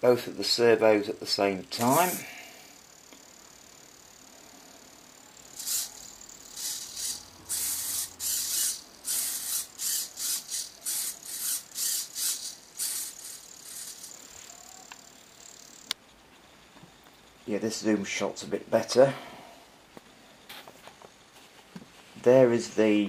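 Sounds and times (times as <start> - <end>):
servos buzzing whirs: 1.7 - 2.3, 5.4 - 15.9.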